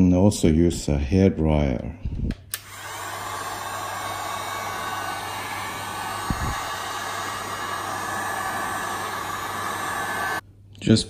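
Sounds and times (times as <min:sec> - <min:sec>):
heat gun fan humming: 0:02.5 - 0:10.4.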